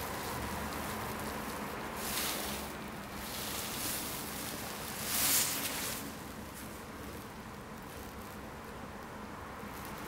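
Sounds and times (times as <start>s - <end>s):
glove and sleeve rustling: 0.0s - 8.4s
steady hiss: 0.0s - 10.0s.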